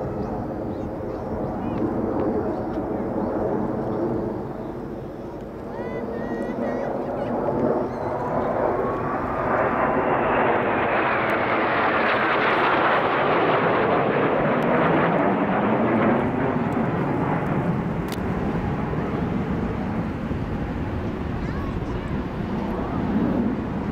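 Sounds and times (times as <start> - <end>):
jets passing overhead: 0.0 - 23.9.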